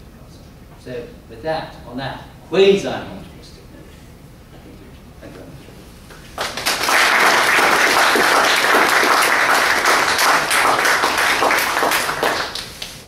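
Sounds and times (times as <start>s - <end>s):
audience applauding: 6.4s - 13.0s.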